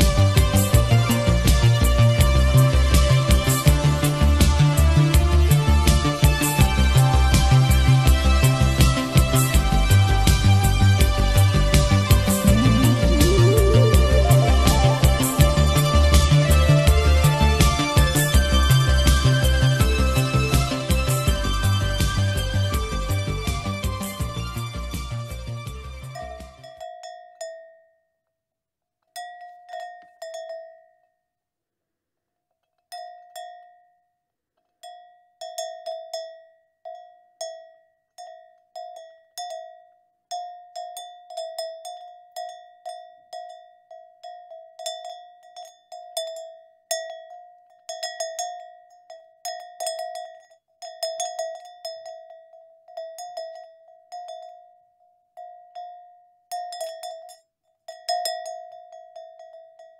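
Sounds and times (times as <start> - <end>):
cowbells clanking: 26.1 - 27.8, 29.2 - 31.1, 32.9 - 34.0, 34.8 - 59.9.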